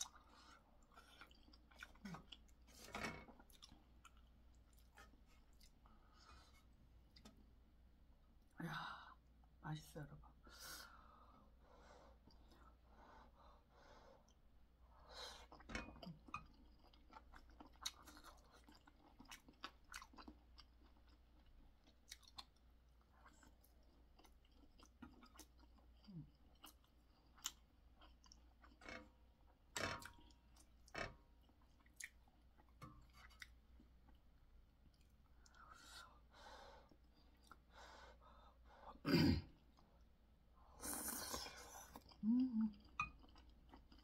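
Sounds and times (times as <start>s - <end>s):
person chewing with mouth smacks: 15.5s - 28.8s, 31.4s - 34.2s, 41.8s - 44.0s.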